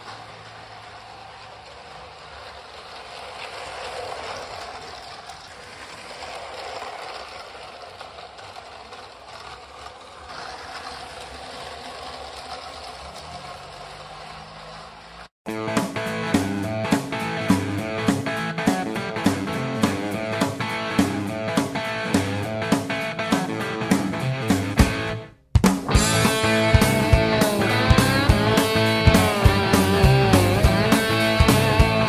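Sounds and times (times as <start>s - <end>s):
toy train electric motors: 0.0s - 15.3s
wheels rattling over track: 0.0s - 25.2s, 25.8s - 32.0s
guitar music: 15.5s - 32.0s.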